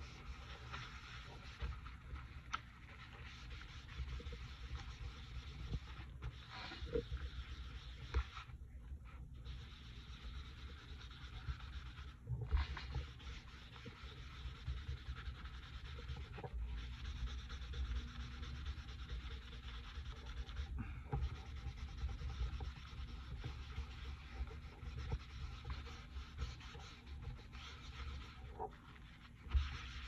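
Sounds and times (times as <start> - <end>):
paper towel rubbing on paper: 0.0 - 30.0.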